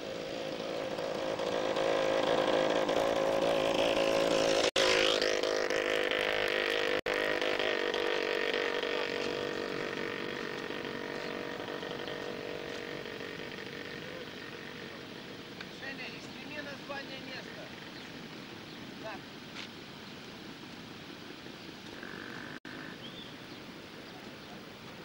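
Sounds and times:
vehicle engine passing: 0:00.0 - 0:18.0.

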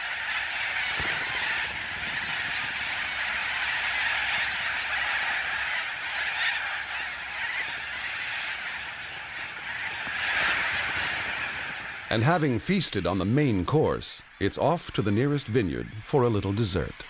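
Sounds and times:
flock of birds screeching: 0:00.0 - 0:17.0.

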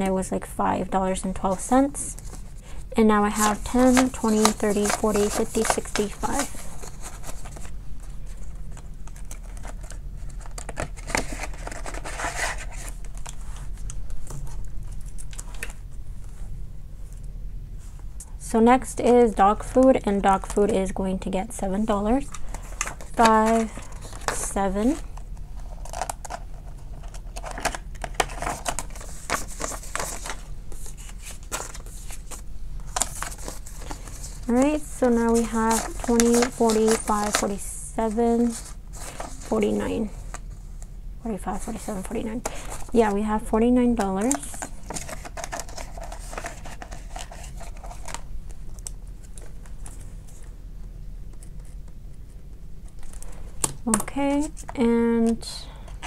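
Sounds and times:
paper banknotes rustling: 0:01.4 - 0:15.7, 0:22.1 - 0:40.4, 0:44.0 - 0:50.5.

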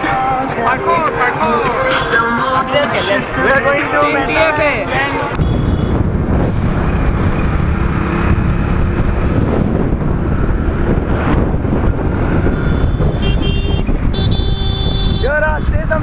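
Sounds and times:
road noise: 0:00.0 - 0:16.0
wind rushing over microphone: 0:03.3 - 0:16.0
motorcycle engine: 0:05.2 - 0:15.7.

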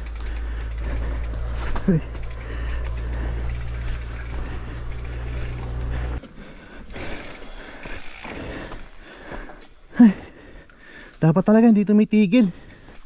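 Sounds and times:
bike tyres crunching over leaves: 0:00.0 - 0:09.8
bike ticking and rattling: 0:00.0 - 0:13.0.

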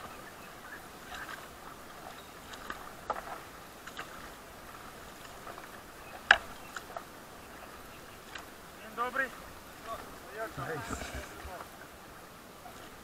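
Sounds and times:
paddles pulling through water: 0:00.0 - 0:13.0
water splashes: 0:00.0 - 0:13.0.

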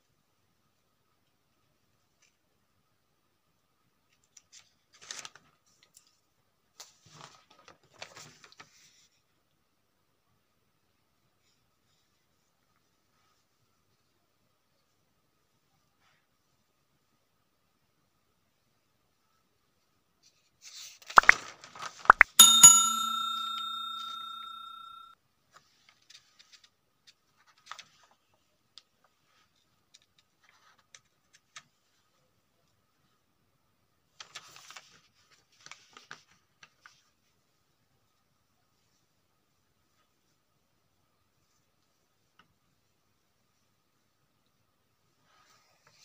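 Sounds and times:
bell ding: 0:22.2 - 0:25.1.

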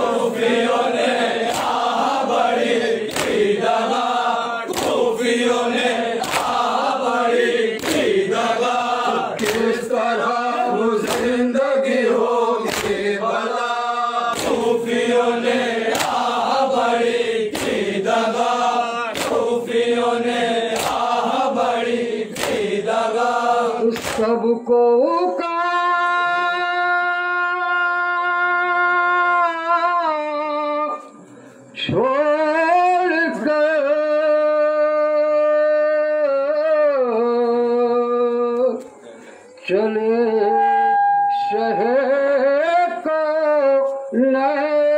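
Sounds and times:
men chanting in unison: 0:00.0 - 0:30.1
hand slaps on chest: 0:03.1 - 0:03.4, 0:06.2 - 0:06.6, 0:07.8 - 0:08.1, 0:09.4 - 0:09.7, 0:11.0 - 0:11.3, 0:12.7 - 0:13.0, 0:15.9 - 0:16.2, 0:17.5 - 0:17.8, 0:19.2 - 0:19.4, 0:22.4 - 0:22.6.

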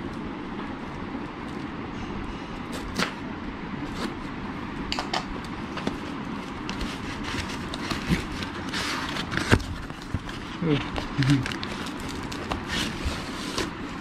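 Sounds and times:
paper crackling and rustling: 0:05.7 - 0:14.0.

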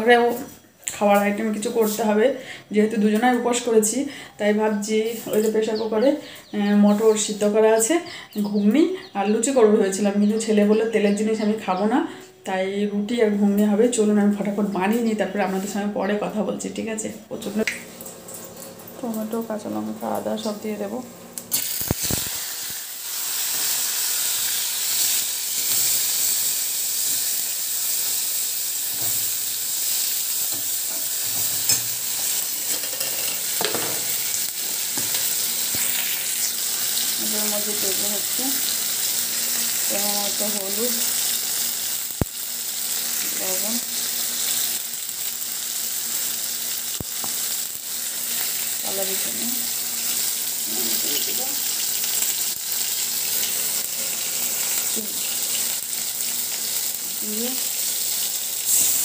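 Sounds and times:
hot oil sizzling in a pan: 0:00.0 - 0:02.3, 0:17.5 - 0:59.0.

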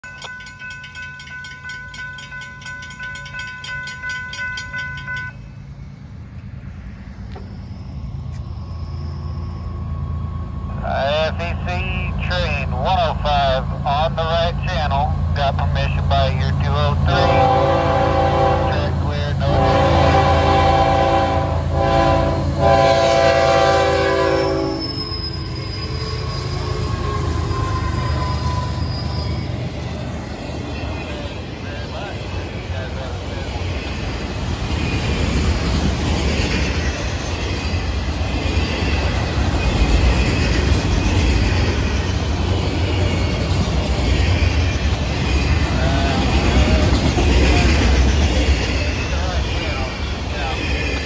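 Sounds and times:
crossing warning bell ringing: 0:00.0 - 0:05.8, 0:06.5 - 0:10.8, 0:19.5 - 0:51.0
low rumble of diesel locomotives: 0:00.0 - 0:51.0
locomotive air horn blasts: 0:17.1 - 0:24.8.

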